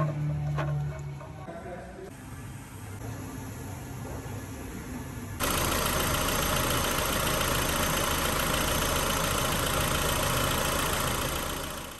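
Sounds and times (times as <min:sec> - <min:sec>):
car engine idling: 0:05.4 - 0:11.9.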